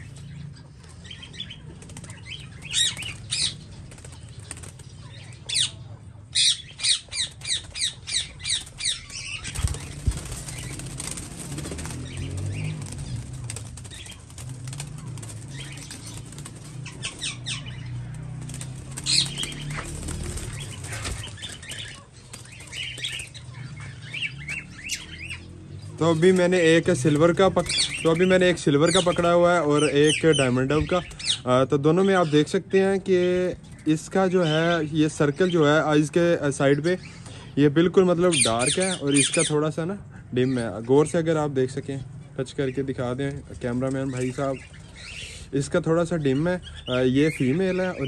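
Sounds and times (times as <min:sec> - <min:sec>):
doves flapping wings: 0:00.8 - 0:05.8, 0:07.0 - 0:29.3.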